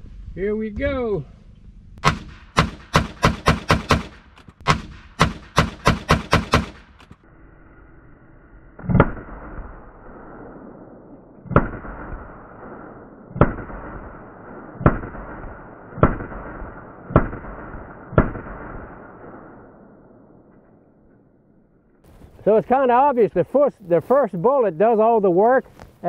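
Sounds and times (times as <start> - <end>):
pistol shots with echo: 2.0 - 7.0, 11.5 - 19.4.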